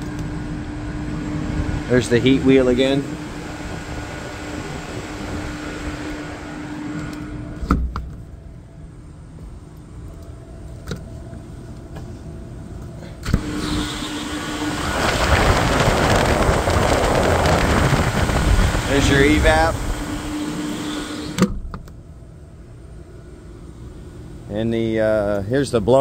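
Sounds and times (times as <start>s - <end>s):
loud rush of moving air: 0.0s - 7.6s, 13.3s - 21.4s
fan hum with low tone: 0.0s - 26.0s.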